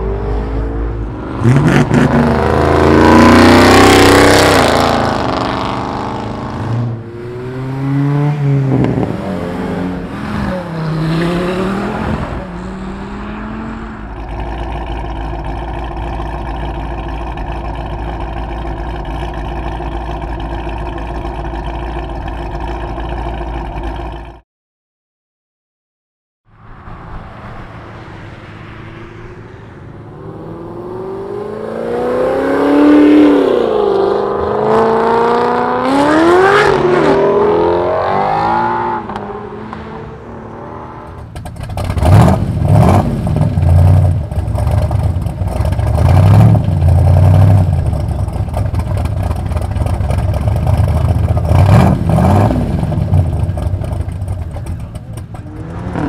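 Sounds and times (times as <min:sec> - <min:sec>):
car engines accelerating hard: 0:00.0 - 0:24.0, 0:26.5 - 0:56.0.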